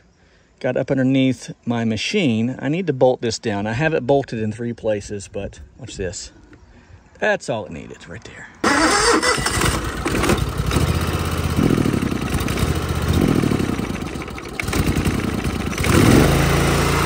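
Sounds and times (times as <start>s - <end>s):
pressure washer engine running: 9.6s - 17.0s.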